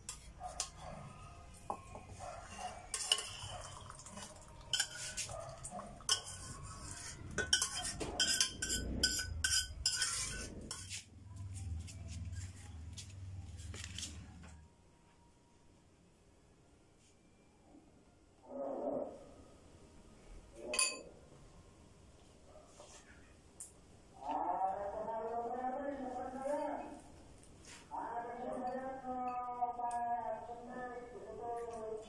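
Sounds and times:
metal pot clattering on ceramic: 2.9s - 10.9s, 20.7s - 21.0s.

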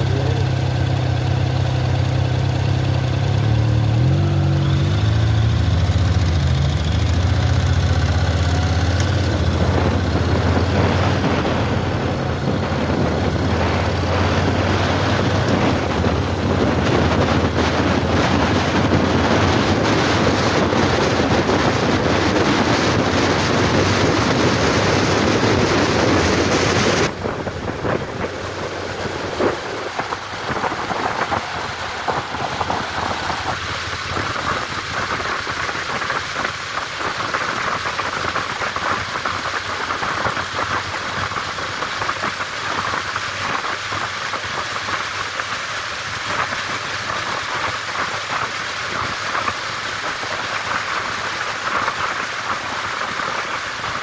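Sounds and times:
wind and road noise hissing: 0.0s - 54.0s
low wind buffeting: 4.0s - 36.4s.

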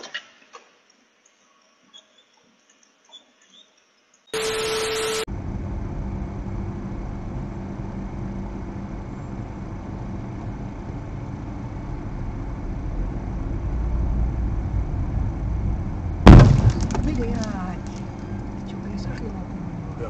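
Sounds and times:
car engine rumble from inside: 5.3s - 20.0s.

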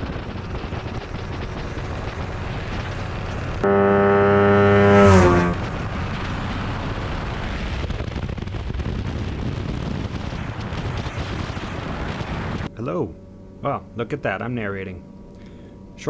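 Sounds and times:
wind rush: 0.0s - 3.7s, 4.6s - 12.7s
aircraft engine at full power: 0.0s - 13.4s
loud buzzing tone: 3.6s - 5.9s.

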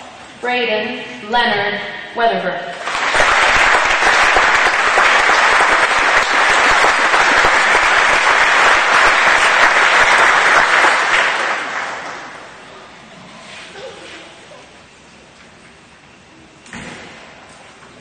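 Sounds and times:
audience applauding: 2.8s - 12.7s.

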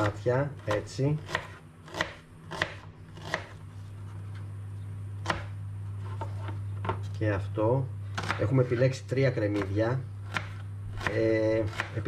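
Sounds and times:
knife chopping on plastic board: 0.0s - 3.6s, 5.2s - 5.5s, 8.2s - 8.5s, 9.5s - 12.0s
steady low hum: 0.0s - 12.0s.

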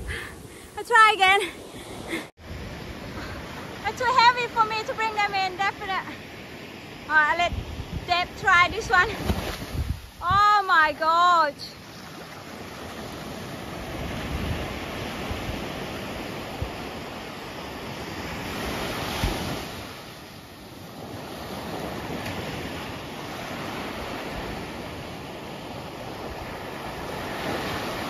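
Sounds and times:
ocean surf breaking: 0.0s - 28.0s
wind on microphone: 7.2s - 10.7s, 13.0s - 20.0s.

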